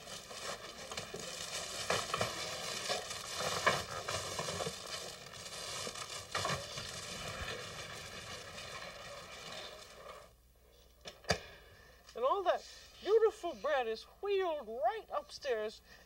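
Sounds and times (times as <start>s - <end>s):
loaves knocking into basket: 0.0s - 9.9s
crackling of bread crust and wicker: 0.0s - 10.3s.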